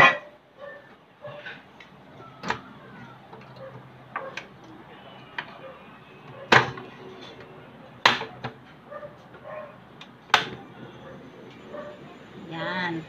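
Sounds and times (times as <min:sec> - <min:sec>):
faint steady background noise: 0:00.0 - 0:13.0.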